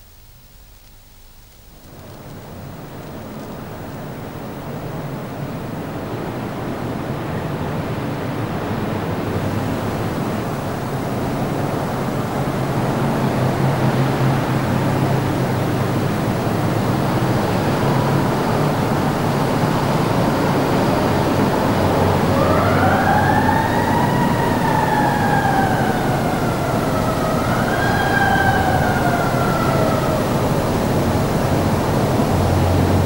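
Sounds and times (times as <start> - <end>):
steady rushing noise: 1.5 - 33.0
emergency vehicle siren wailing: 5.9 - 33.0.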